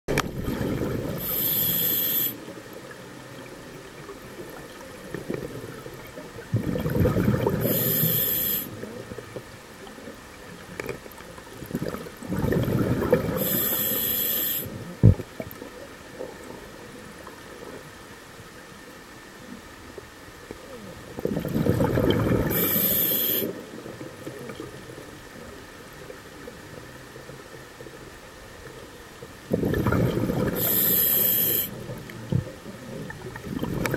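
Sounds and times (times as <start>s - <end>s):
diver breathing through regulator: 1.2s - 2.4s, 7.6s - 8.8s, 13.3s - 14.8s, 22.4s - 23.6s, 30.4s - 31.8s.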